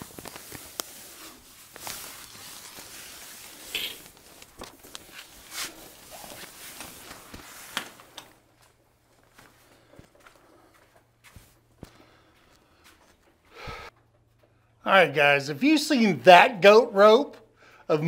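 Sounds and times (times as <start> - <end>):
fabric rustling and crinkling: 0.0 - 11.8
sharp snaps and knocks: 6.8 - 8.4.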